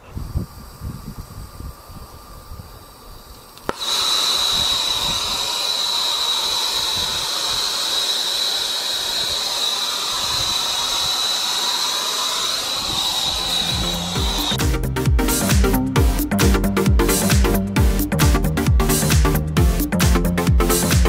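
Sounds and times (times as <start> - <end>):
torch flame hissing: 0.0 - 21.0
flint striker snap: 3.3 - 3.9
high whistling tone: 3.7 - 16.3.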